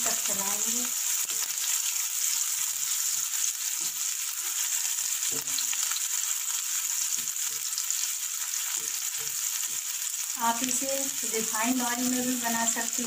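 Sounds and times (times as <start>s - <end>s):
onion sizzling in hot oil: 0.0s - 13.0s
spatula scraping and tapping pan: 1.2s - 10.0s.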